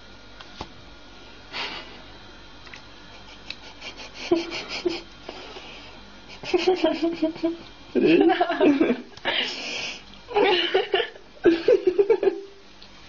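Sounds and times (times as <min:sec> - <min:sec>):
person giggling: 0:03.2 - 0:05.4, 0:06.3 - 0:09.6, 0:10.3 - 0:12.5.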